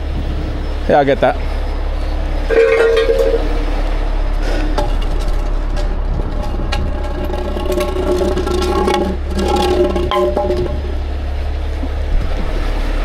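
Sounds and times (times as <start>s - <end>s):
diesel engine rumbling: 0.0s - 13.0s
clicks and knocks: 2.5s - 3.6s, 4.8s - 11.1s.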